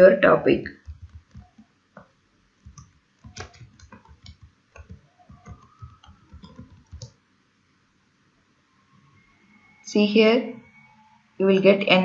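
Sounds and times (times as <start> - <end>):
keyboard key clicks: 2.7 - 7.1.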